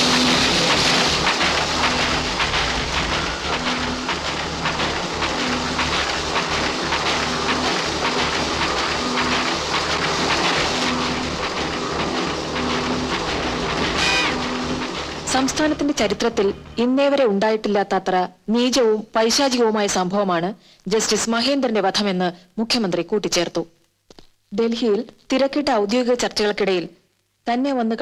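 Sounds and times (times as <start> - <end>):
printing press clattering: 0.0 - 16.8.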